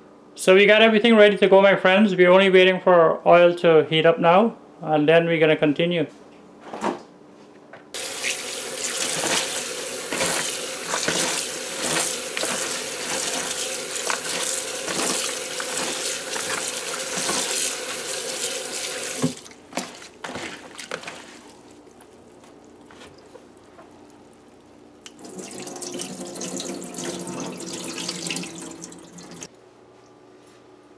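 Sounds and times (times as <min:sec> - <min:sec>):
tap running into bowl: 0:08.0 - 0:19.4
hands swishing cabbage in water: 0:08.0 - 0:23.7.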